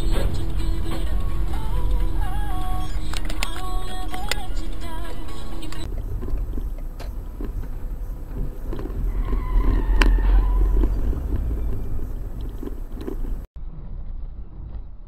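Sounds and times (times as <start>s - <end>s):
car engine and road rumble: 0.0s - 15.0s
sharp click: 3.0s - 4.5s.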